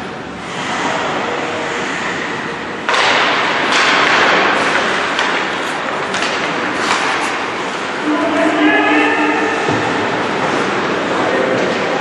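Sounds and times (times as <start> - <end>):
hockey sticks and puck knocking: 2.9 - 7.6.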